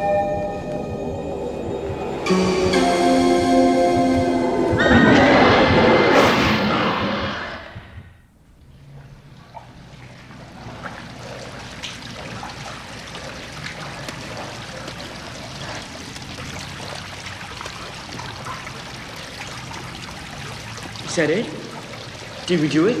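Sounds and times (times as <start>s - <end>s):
water trickling: 8.5s - 23.0s
water drips and splashes: 8.6s - 23.0s.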